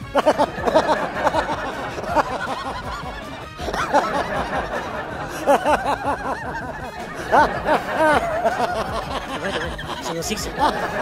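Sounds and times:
background music: 0:00.0 - 0:11.0
men laughing: 0:00.0 - 0:11.0.

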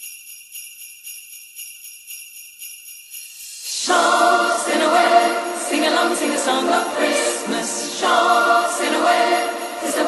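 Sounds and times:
sleigh bells shaken: 0:00.0 - 0:10.0.

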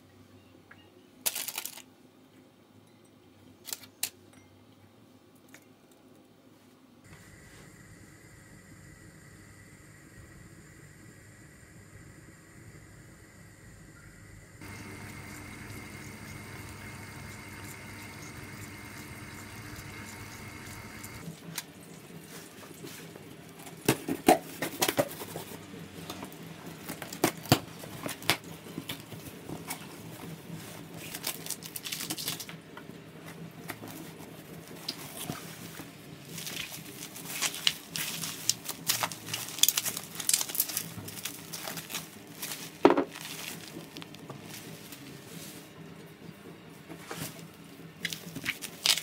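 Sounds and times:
faint held tone: 0:07.1 - 0:21.2
cardboard crackling rustle: 0:33.8 - 0:45.7.

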